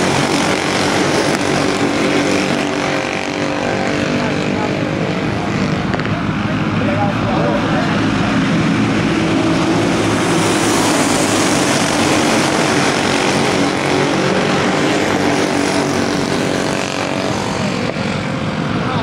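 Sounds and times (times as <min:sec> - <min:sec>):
go-kart engines buzzing: 0:00.0 - 0:19.0.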